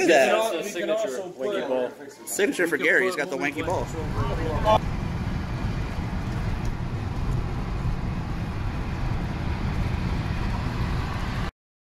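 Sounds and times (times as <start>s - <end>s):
car cabin road noise: 3.5s - 11.5s.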